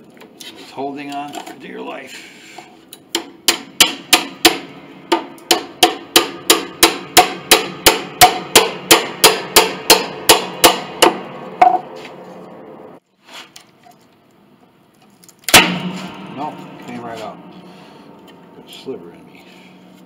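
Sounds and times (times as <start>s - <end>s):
hammer striking a chisel: 3.1s - 11.9s.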